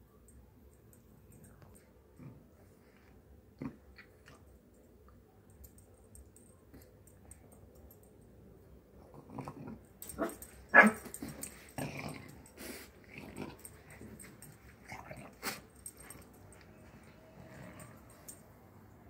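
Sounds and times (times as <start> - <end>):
small dogs growling: 2.2 - 2.5, 3.6 - 4.4, 9.0 - 16.2
dogs wheezy snorting breaths: 11.1 - 16.7.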